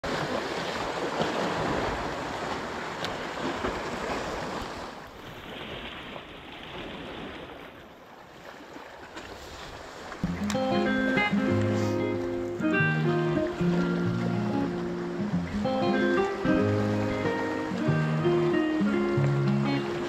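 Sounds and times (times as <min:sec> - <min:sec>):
waves washing against rocks: 0:00.0 - 0:20.0
music: 0:10.2 - 0:20.0.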